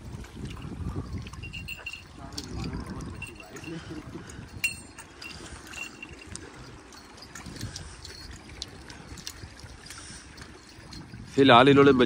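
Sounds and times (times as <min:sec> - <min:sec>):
small waves lapping on rocks: 0:00.0 - 0:12.0.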